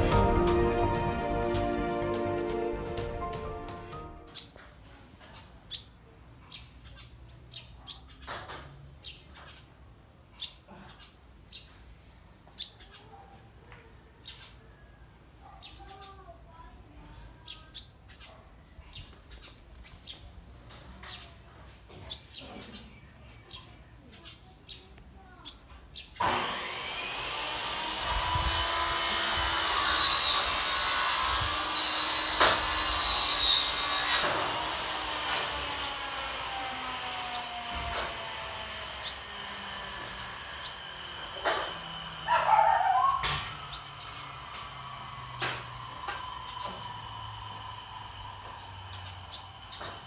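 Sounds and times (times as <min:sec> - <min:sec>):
loud machine whine: 0:26.2 - 0:42.4, 0:43.2 - 0:50.0
sunbird chirping: 0:48.9 - 0:49.9.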